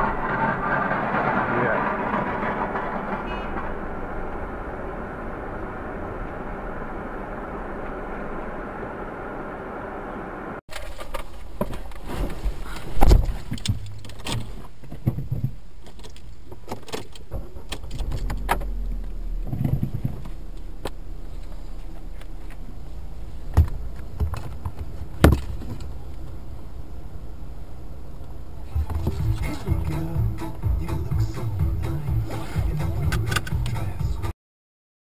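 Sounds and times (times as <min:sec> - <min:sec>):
low engine rumble: 0:00.0 - 0:34.3
sharp thumps: 0:10.7 - 0:22.2
clicks and rattles: 0:13.1 - 0:21.6.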